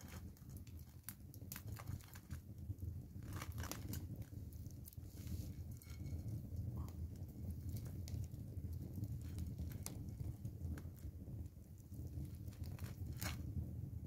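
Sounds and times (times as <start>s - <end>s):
hands tearing roasted chicken: 0.0s - 2.4s, 12.3s - 13.4s.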